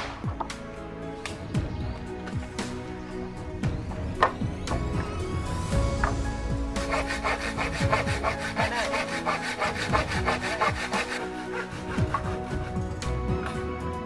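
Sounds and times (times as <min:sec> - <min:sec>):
handsaw cutting wood: 0:06.8 - 0:12.8.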